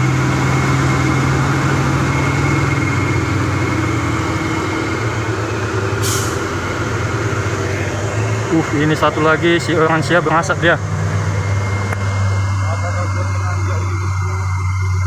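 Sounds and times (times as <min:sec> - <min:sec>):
truck diesel engines droning: 0:00.0 - 0:15.0
air brake hiss: 0:06.0 - 0:06.5.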